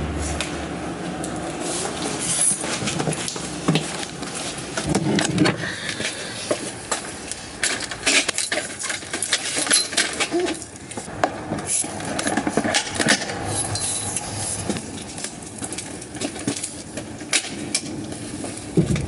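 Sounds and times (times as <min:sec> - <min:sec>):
stroller frame clicks and knocks: 0:02.6 - 0:13.8, 0:14.6 - 0:19.0.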